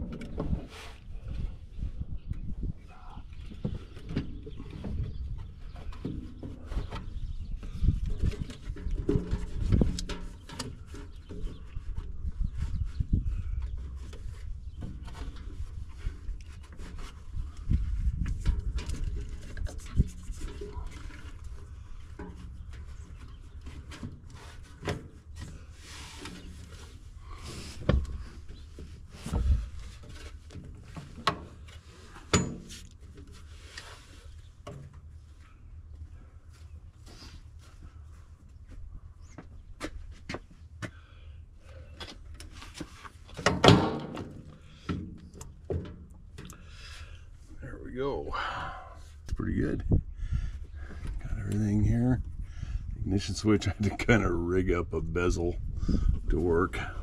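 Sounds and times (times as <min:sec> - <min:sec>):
metal panel knocks and clunks: 0:43.4 - 0:46.0.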